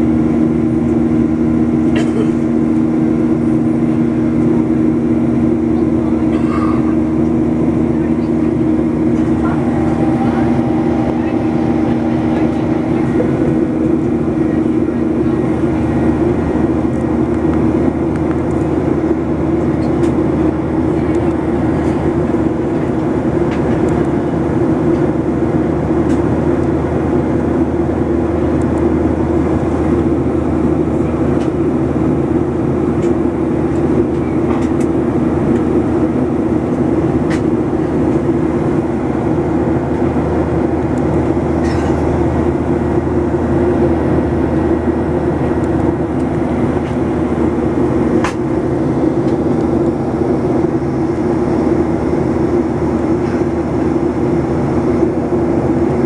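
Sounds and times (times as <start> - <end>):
airplane engine hum: 0.0 - 56.0
rushing airflow: 7.3 - 18.2.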